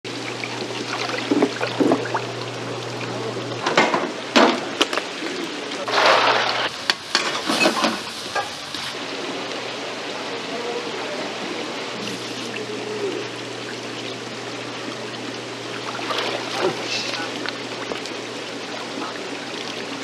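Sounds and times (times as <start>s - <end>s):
steady low hum: 0.1s - 6.7s, 8.9s - 20.0s
water splashing into tank: 0.2s - 5.1s, 5.8s - 8.2s, 14.8s - 20.0s.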